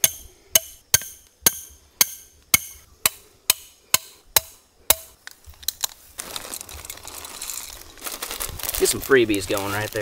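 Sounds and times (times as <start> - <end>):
hammer striking metal stake: 0.0 - 5.2.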